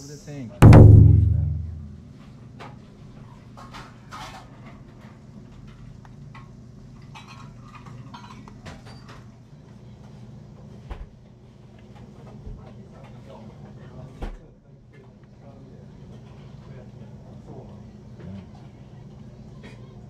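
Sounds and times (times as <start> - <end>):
dull thump: 0.6 - 2.0
steady low hum: 0.6 - 2.1
dishes clinking and clattering: 7.0 - 9.2.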